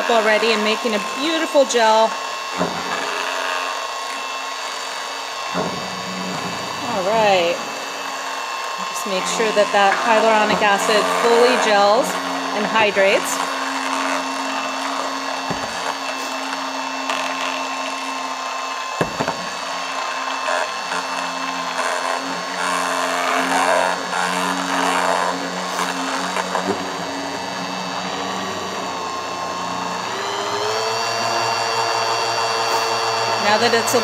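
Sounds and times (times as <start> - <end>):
stick blender motor whine: 0.0 - 34.0
gel churning: 5.8 - 18.5.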